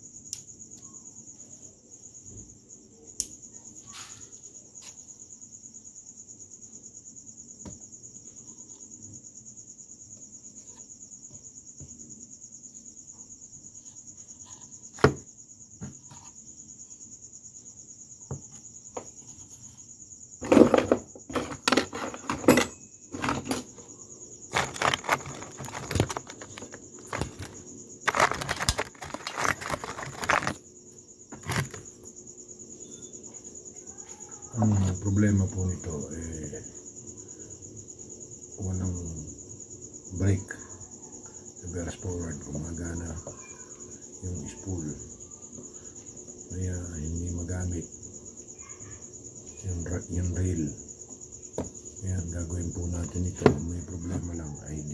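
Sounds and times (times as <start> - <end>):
crickets trilling: 0.0 - 54.9
handling clicks and rattles: 24.5 - 30.6, 31.4 - 31.8.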